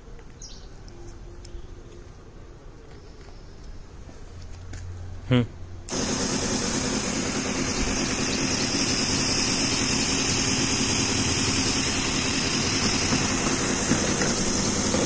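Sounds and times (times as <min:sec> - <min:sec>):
electric pump humming: 0:05.9 - 0:15.0
water spray hissing: 0:05.9 - 0:15.0.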